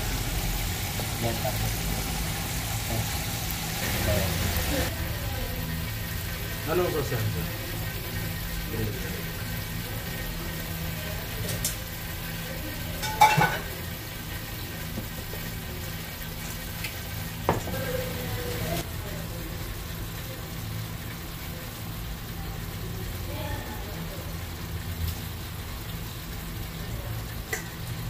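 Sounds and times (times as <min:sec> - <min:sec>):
kitchen hiss: 0:00.0 - 0:28.0
metal bowl and tongs clanking: 0:13.0 - 0:13.8.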